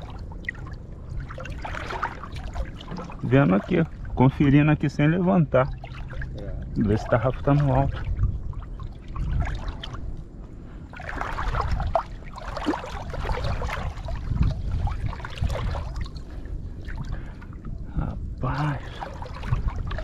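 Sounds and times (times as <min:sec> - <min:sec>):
low rumble: 0:00.0 - 0:20.0
shallow water sloshing and splashing: 0:00.0 - 0:20.0.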